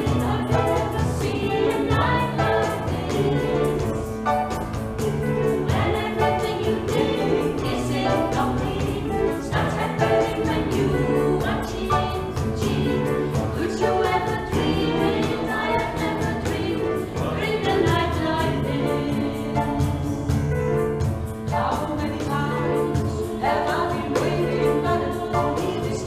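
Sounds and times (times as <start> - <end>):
group singing in harmony: 0.0 - 26.0
percussive beat: 0.0 - 26.0.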